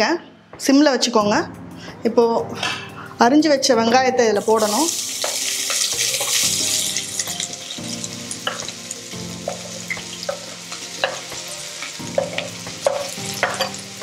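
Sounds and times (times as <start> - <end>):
onions sizzling in oil: 4.4 - 14.0
spoon clicking on board and pot: 9.4 - 11.3, 11.9 - 13.8.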